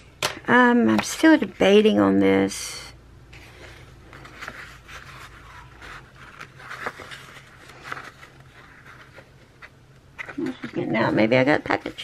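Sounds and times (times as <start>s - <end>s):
low steady hum: 0.0s - 12.0s
paper rustling: 3.4s - 12.0s.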